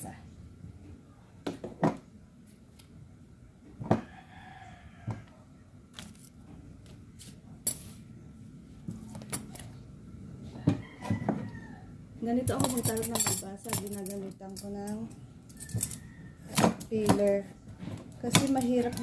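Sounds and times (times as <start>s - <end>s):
rooster crowing: 3.9s - 5.4s, 10.4s - 12.0s, 15.6s - 16.5s.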